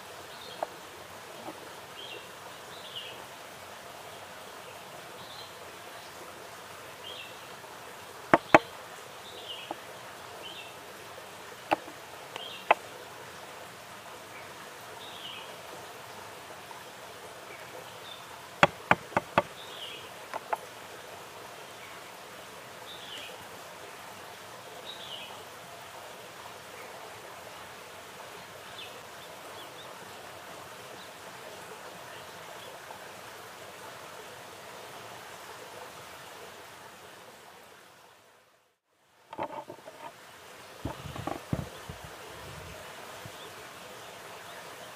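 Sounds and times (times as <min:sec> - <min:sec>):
steady outdoor hiss: 0:00.0 - 0:44.9
wooden bowls clacking on a board: 0:18.6 - 0:19.5.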